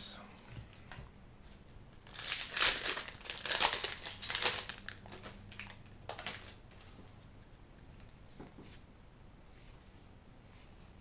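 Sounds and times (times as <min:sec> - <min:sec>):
foil wrapper crinkling and tearing: 0:01.9 - 0:06.6.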